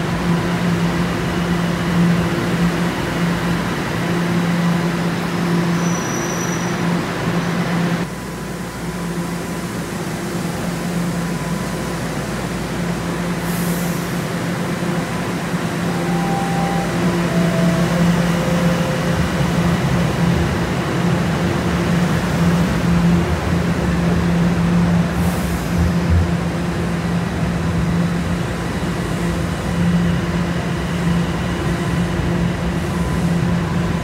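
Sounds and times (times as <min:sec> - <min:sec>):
subway train humming: 0:00.0 - 0:34.0
train pulling out rumbling: 0:00.0 - 0:34.0
air hiss: 0:13.4 - 0:14.3.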